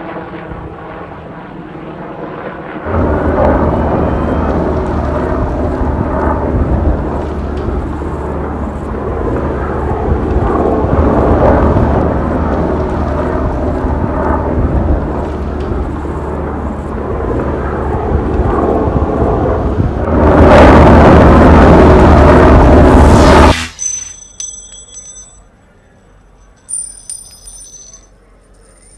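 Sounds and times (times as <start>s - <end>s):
helicopter rotor rumble: 0.0s - 23.7s
wind buffeting microphone: 2.8s - 23.5s.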